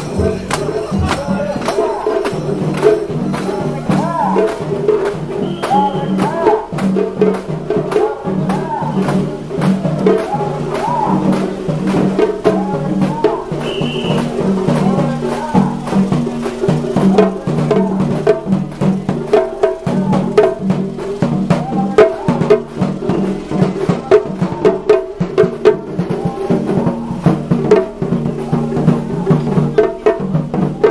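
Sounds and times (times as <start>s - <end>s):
taiko drum: 0.0s - 30.9s.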